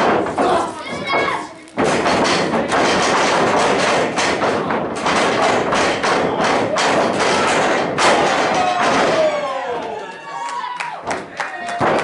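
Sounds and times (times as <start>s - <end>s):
bodies thumping on ring boards: 0.0s - 9.5s.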